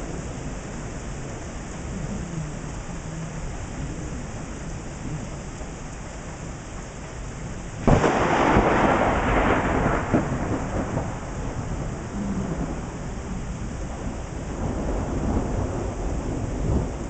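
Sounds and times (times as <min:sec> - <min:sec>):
steady rain: 0:00.0 - 0:17.0
thunder clap rumbling: 0:07.4 - 0:17.0.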